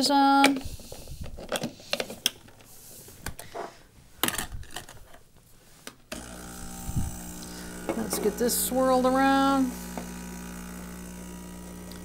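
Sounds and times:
espresso pump buzzing hum: 6.1s - 12.0s
portafilter clicks and knocks: 7.8s - 8.4s.

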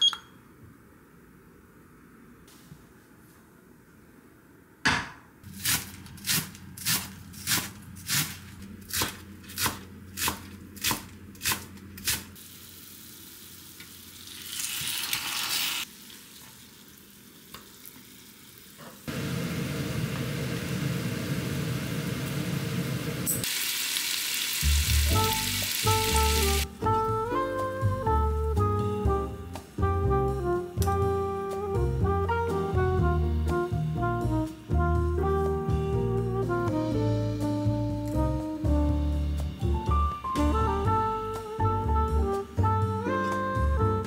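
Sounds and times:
meat sizzling in a skillet: 12.4s - 18.8s, 23.3s - 26.6s
music: 24.6s - 44.0s.

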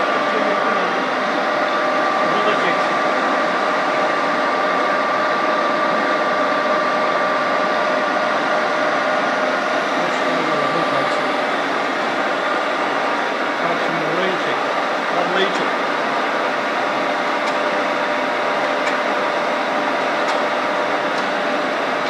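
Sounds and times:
machine hum with whine: 0.0s - 22.0s.

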